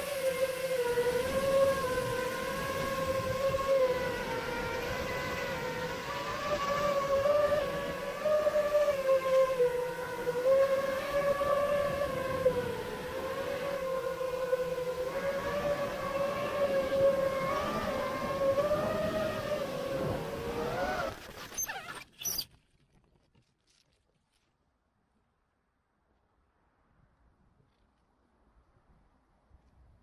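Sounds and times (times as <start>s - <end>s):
drone motors whining: 0.0s - 22.4s.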